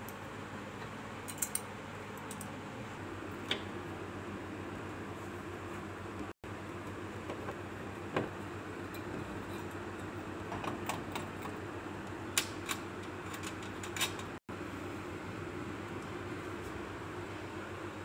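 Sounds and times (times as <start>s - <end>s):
steady room hum: 0.0s - 18.0s.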